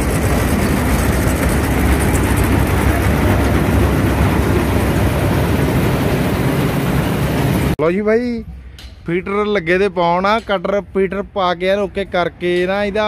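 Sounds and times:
combine harvester mechanical rumble: 0.0 - 7.8.

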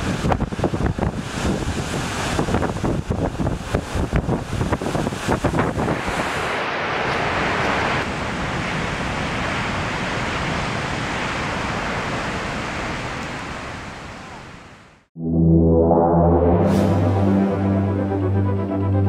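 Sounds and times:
wind buffeting microphone: 0.0 - 13.2
heavy surf crashing: 0.0 - 14.7.

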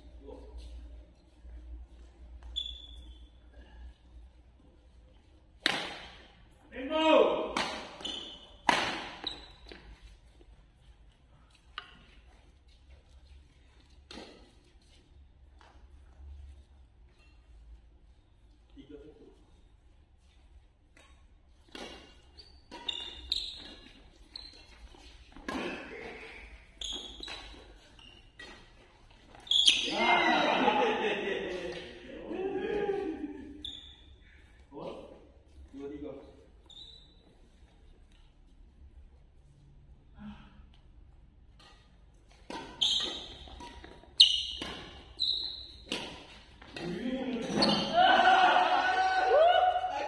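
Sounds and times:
shoes squeaking on hard floor: 0.6 - 3.6, 7.9 - 18.4, 21.0 - 30.2, 33.6 - 34.4, 36.3 - 38.0, 41.6 - 48.0
badminton rackets hitting shuttlecock: 5.6 - 6.3, 7.4 - 9.8, 20.9 - 26.3, 41.5 - 47.9.

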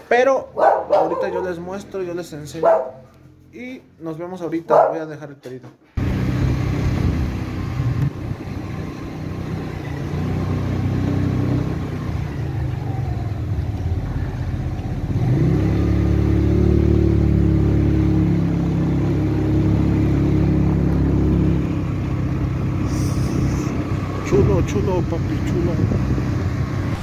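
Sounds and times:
motorcycle engine revving: 6.0 - 27.0.

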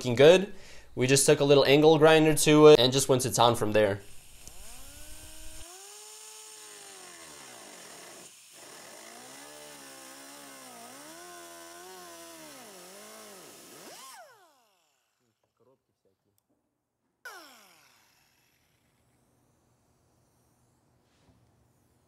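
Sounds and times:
pneumatic cut-off tool whining: 4.0 - 15.2, 17.3 - 19.5.

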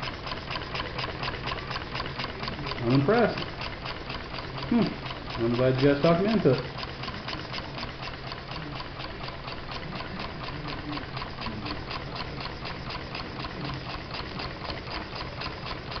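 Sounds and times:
model steam engine chuffing: 0.0 - 16.0.

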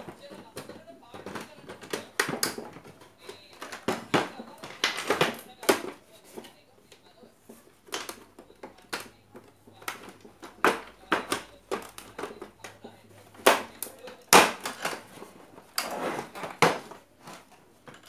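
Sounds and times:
plastic cabinet knocks and rattles: 0.0 - 6.0.

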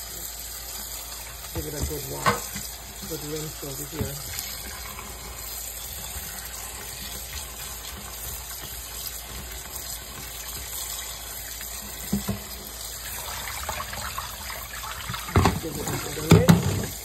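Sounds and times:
tap water running: 0.0 - 17.0
water splashing: 6.1 - 17.0.

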